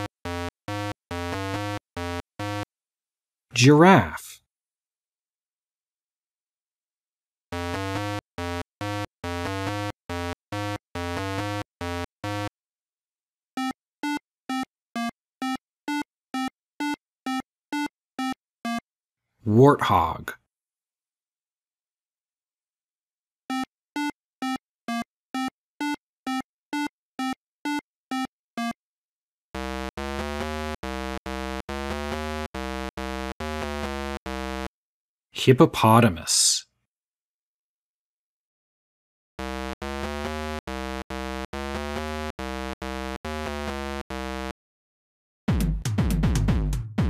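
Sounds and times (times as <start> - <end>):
buzzy electronic tune: 29.6 - 34.7, 39.4 - 44.5.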